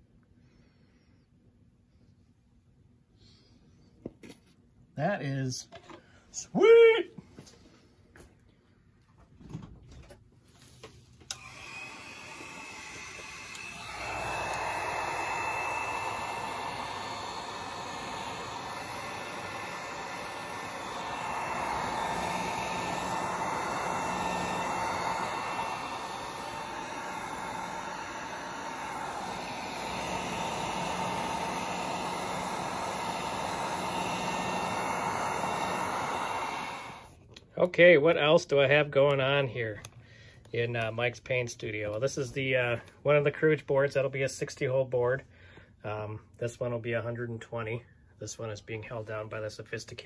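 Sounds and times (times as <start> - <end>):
heat gun blowing air: 11.3 - 37.2.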